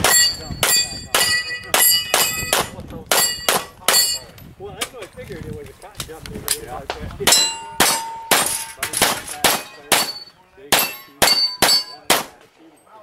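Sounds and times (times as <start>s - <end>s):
steel targets ringing: 0.0s - 4.3s, 7.3s - 12.2s
pistol shots: 7.3s - 12.4s.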